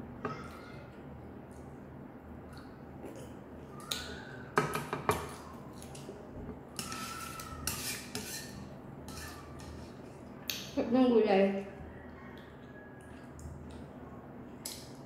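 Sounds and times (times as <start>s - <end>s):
stirring and scraping noodles in pan: 6.8s - 10.1s.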